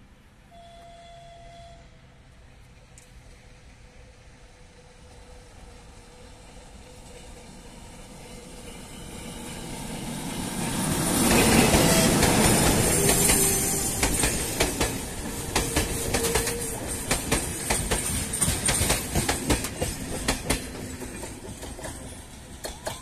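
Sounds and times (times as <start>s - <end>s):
diesel locomotive passing: 0.0s - 23.0s
wagon wheels clacking over rail joints: 11.2s - 23.0s.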